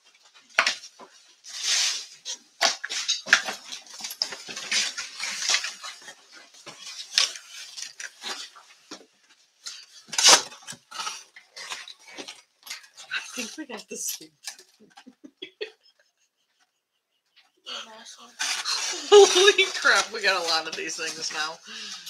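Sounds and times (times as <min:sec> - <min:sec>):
cardboard boxes unpacked by hand: 0:00.2 - 0:13.6, 0:18.4 - 0:22.0.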